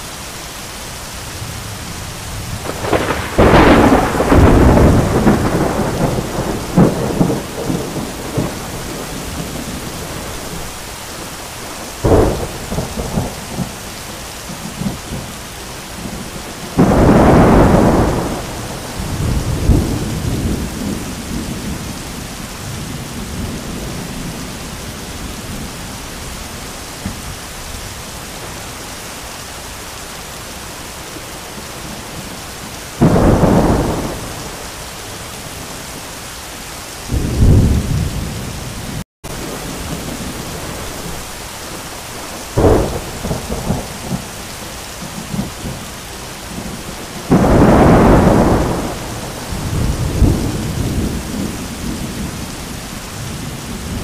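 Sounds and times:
heavy rain: 0.0 - 54.0
thunderclaps: 1.4 - 13.9, 16.0 - 24.6, 33.0 - 35.2, 37.1 - 44.4, 46.5 - 52.6.

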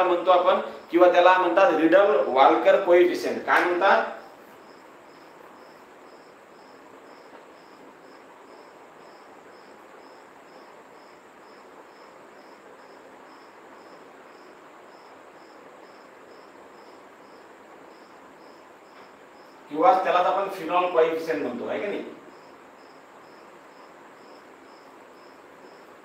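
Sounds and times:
cricket chirping: 0.0 - 26.0
room noise hiss: 0.0 - 26.0.

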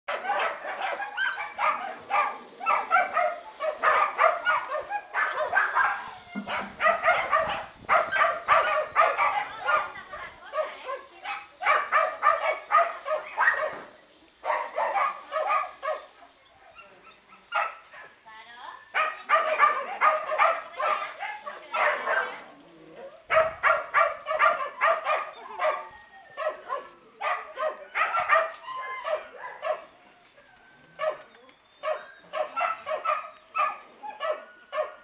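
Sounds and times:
puppy yapping: 23.3 - 29.9.

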